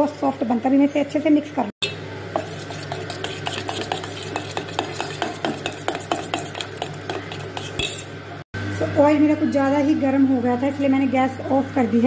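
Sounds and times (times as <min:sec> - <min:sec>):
spoon squelching in batter: 0:02.4 - 0:08.0.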